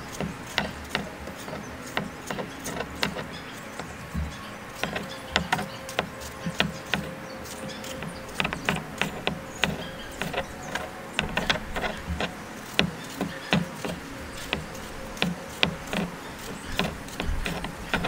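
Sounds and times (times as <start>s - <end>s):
knife slicing tomatoes: 0.0s - 18.0s.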